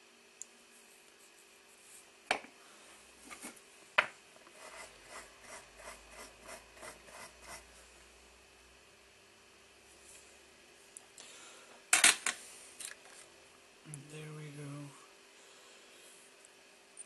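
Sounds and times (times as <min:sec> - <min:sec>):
quick rubbing strokes: 0:04.5 - 0:07.7.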